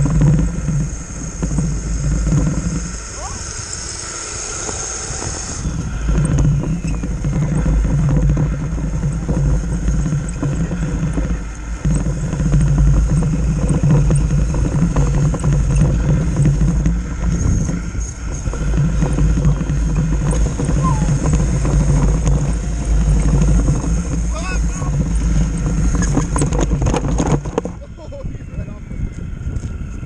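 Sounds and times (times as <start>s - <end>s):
model vehicle electric motor drone: 0.0s - 30.0s
rocks rattling in bin: 4.7s - 28.0s.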